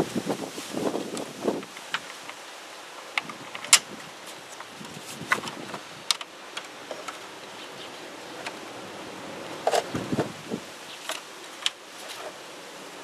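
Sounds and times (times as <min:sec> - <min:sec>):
steady background hiss: 0:00.0 - 0:13.0
plastic parts clicking and rattling: 0:03.1 - 0:07.3, 0:09.6 - 0:10.3, 0:11.0 - 0:12.4
knocks and rustling: 0:03.2 - 0:07.3, 0:09.6 - 0:10.4.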